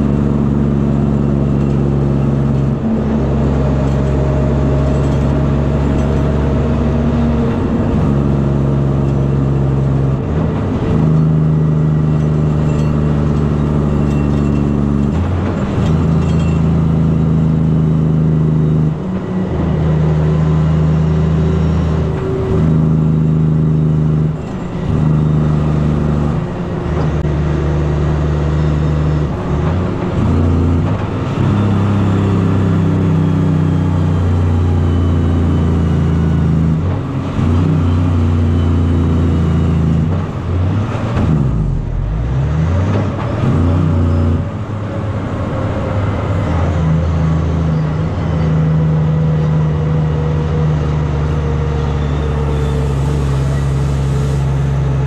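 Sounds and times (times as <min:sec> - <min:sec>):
truck diesel engine under load: 0:00.0 - 0:55.0.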